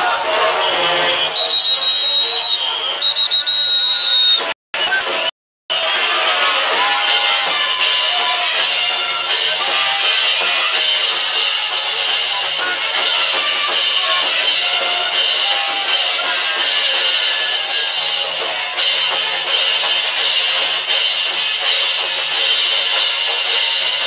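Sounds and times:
folk dance band music with drums: 0:00.0 - 0:24.0.

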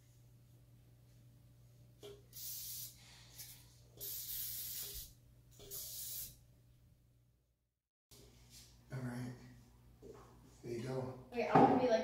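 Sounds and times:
cooking spray hissing from can: 0:02.3 - 0:06.4.

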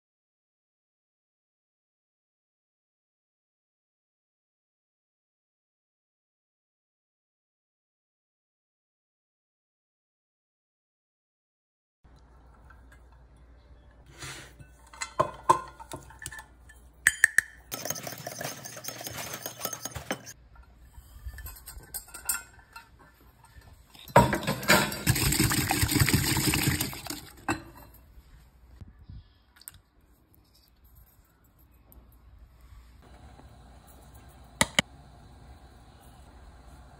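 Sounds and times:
whisk beating batter: 0:17.7 - 0:20.3.

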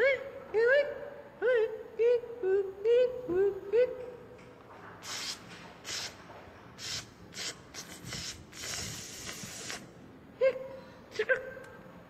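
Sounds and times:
short hissing noises: 0:05.0 - 0:10.0.

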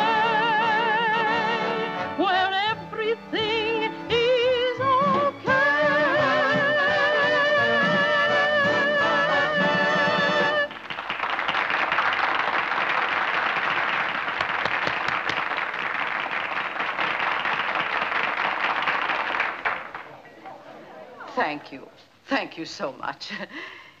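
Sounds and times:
audience applauding: 0:10.2 - 0:20.2.

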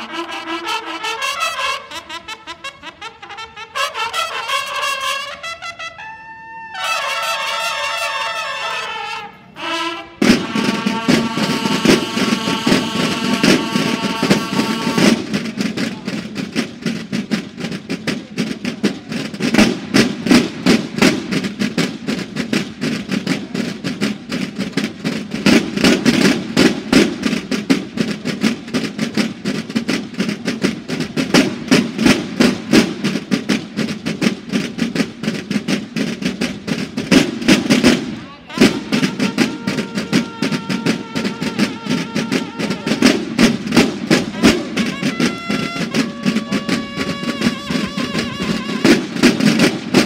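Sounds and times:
marching drums playing rolls: 0:00.0 - 0:50.0
bugles holding a chord: 0:00.1 - 0:15.4, 0:38.5 - 0:50.0.

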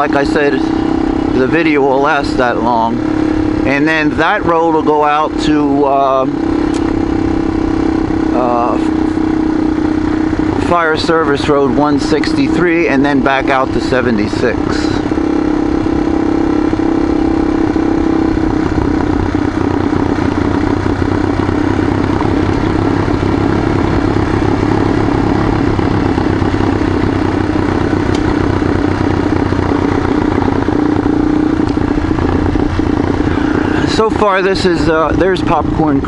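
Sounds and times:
motorcycle engine running: 0:00.0 - 0:36.0.

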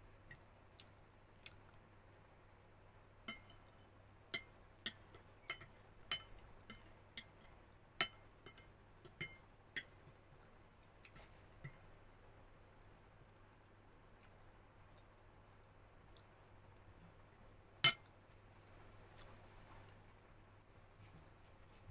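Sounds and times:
fork clinking on ceramic plate: 0:03.3 - 0:10.2.

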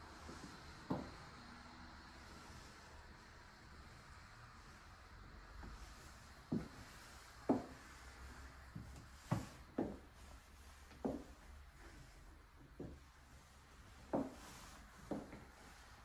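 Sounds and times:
slow footsteps: 0:05.6 - 0:07.9, 0:08.7 - 0:13.2, 0:14.0 - 0:15.8.

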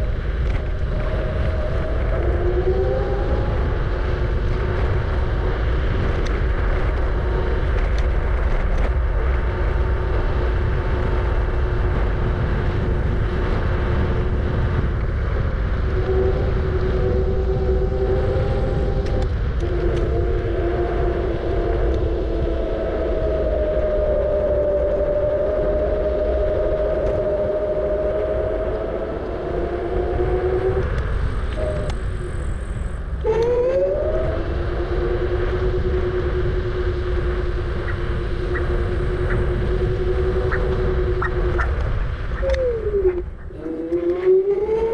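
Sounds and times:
wind rumble on microphone: 0:00.0 - 0:44.9
electric motor whining: 0:26.9 - 0:44.9.

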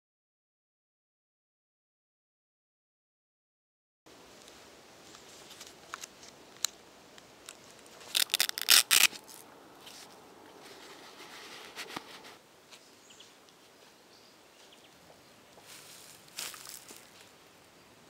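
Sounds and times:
velcro strap ripping: 0:08.0 - 0:09.4.

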